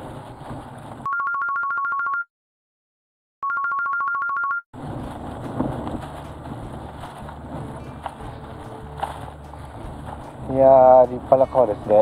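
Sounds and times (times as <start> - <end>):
electronic telephone ringtone: 1.1 - 2.3, 3.4 - 4.6.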